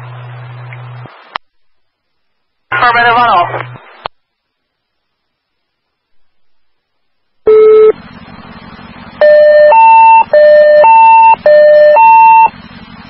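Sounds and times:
radio channel hiss: 2.6 - 5.4
short beep: 7.5 - 8.0, 9.2 - 12.5
two-tone radio alert: 9.2 - 12.5.

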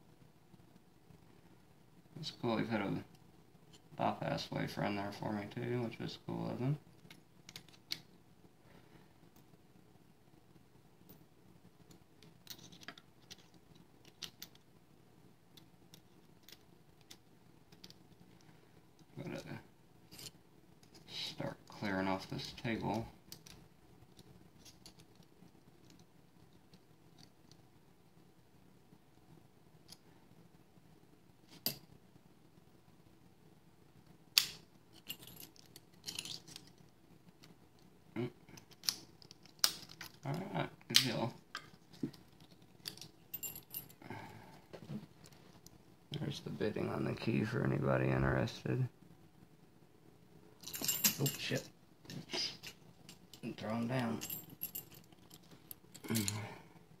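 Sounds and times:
low room hum: 0.0 - 57.0
keys jangling: 35.0 - 36.7, 50.6 - 51.6, 54.2 - 56.4
metal clinks and knock: 50.6 - 51.5.

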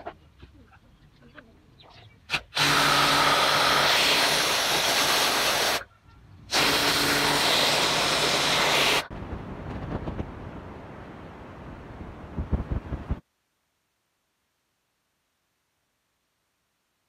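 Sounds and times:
pressure washer spraying: 2.3 - 5.8, 6.5 - 9.1.

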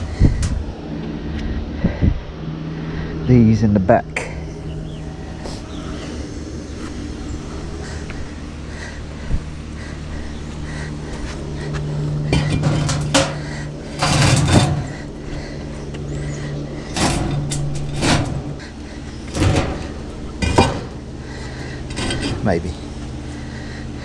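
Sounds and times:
steady low hum: 0.0 - 24.0
concrete blocks scraping and knocking: 12.3 - 15.1.

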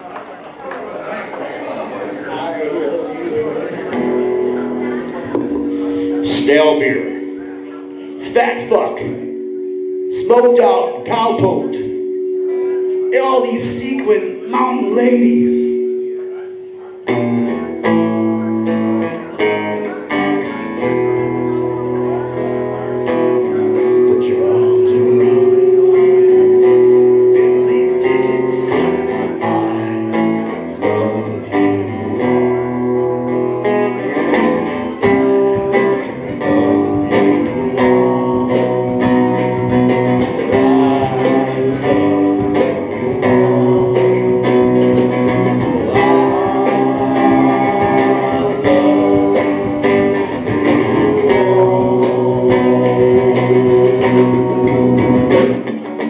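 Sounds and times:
electric guitar: 3.3 - 56.0
bass guitar: 3.7 - 56.0.

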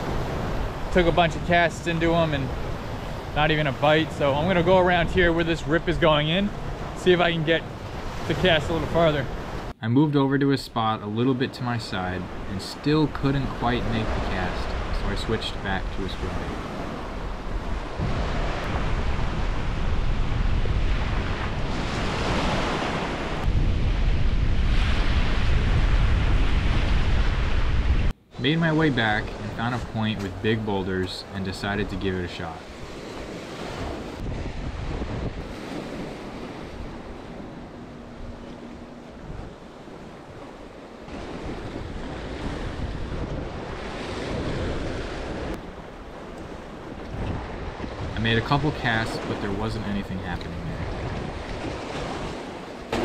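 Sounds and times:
wind buffeting microphone: 0.0 - 9.7, 13.8 - 28.2, 32.7 - 53.0
small waves washing on beach: 0.0 - 9.8, 11.7 - 53.0
surf breaking against boulders: 50.2 - 53.0.

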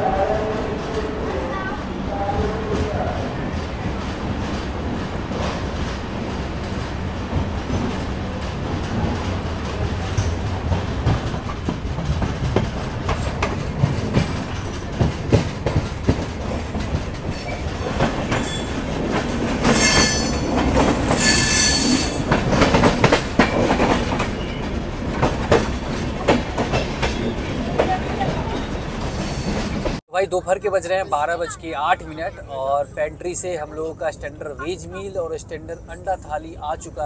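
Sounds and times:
train coaches rumbling: 0.0 - 37.0
wheels clicking over rail joints: 2.4 - 30.0
high-pitched wheel squeal: 18.3 - 18.8, 19.4 - 20.5, 21.1 - 22.3.

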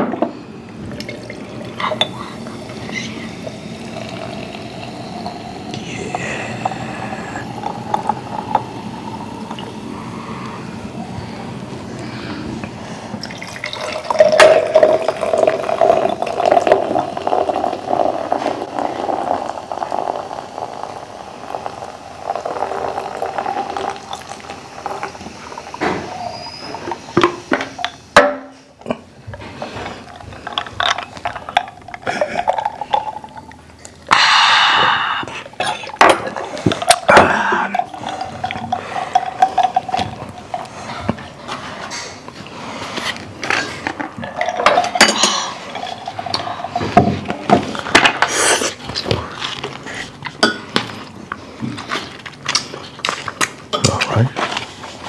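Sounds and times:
soda pouring and fizzing: 0.6 - 12.0, 12.8 - 28.2, 29.4 - 55.0
loud hiss: 2.1 - 12.1, 34.1 - 35.4.

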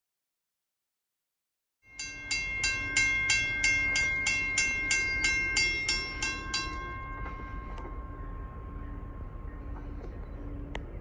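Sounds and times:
railroad crossing bell ringing: 1.8 - 11.0
low rumble: 2.2 - 11.0.

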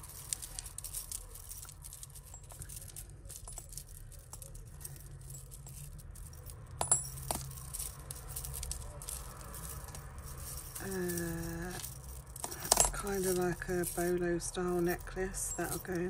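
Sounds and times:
metal jewellery clinking: 0.0 - 16.0.

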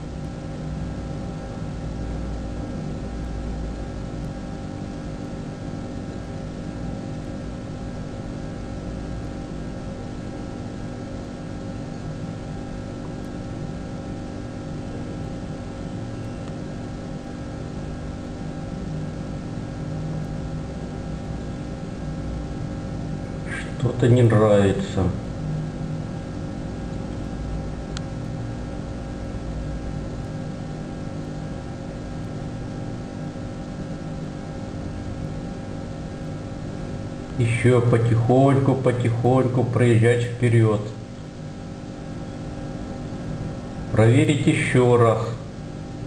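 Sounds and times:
mechanical hum: 0.0 - 46.0.

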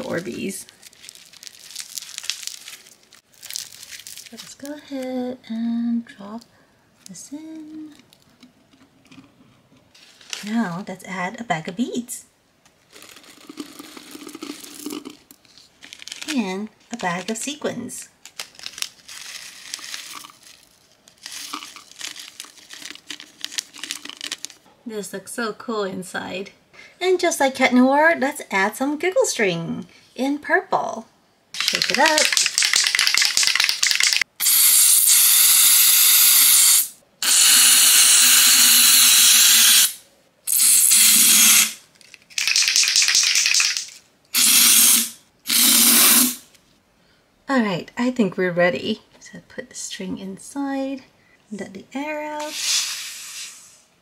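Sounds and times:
plastic bag crinkling: 0.0 - 4.7, 12.8 - 24.7, 31.6 - 34.3, 41.9 - 44.1
sequins ticking into plastic container: 31.6 - 34.2, 42.4 - 44.0
aerosol can spraying: 31.6 - 41.8, 44.4 - 46.4, 52.4 - 53.8.

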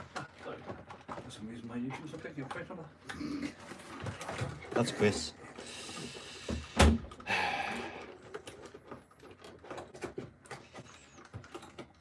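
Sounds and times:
small taps and rustles: 0.0 - 5.3.

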